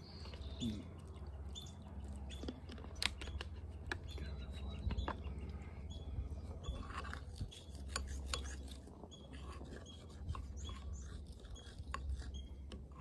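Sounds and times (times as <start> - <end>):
utensil stirring batter in bowl: 6.6 - 13.0.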